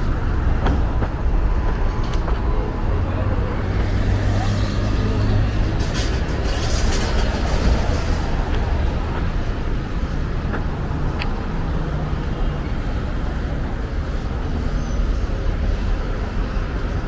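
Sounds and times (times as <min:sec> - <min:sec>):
traffic passing: 0:00.0 - 0:17.0.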